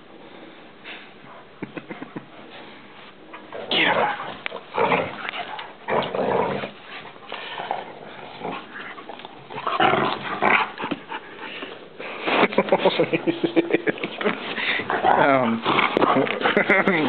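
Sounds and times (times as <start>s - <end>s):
dogs scuffling: 2.4s - 17.0s
dogs growling: 3.3s - 11.9s, 12.7s - 17.0s.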